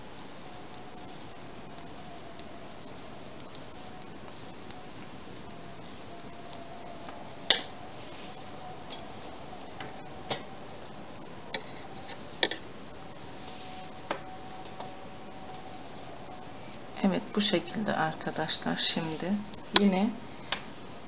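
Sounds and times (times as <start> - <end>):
knitting needles clicking: 0.0 - 10.6
faint steady hum: 0.0 - 21.0.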